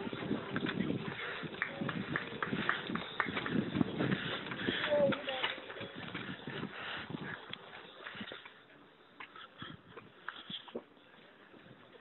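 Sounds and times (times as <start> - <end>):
running footsteps: 0.0 - 8.6.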